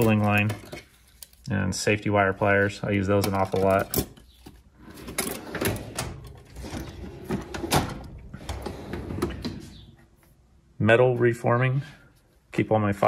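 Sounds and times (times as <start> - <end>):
steel drawers sliding: 4.8 - 9.8.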